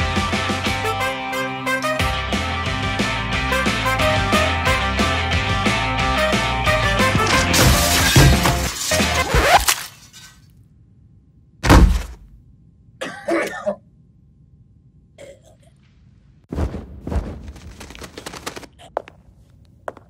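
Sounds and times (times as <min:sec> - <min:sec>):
heavy thud: 0:11.6 - 0:12.4
man coughing and choking: 0:13.0 - 0:13.9, 0:15.2 - 0:15.7.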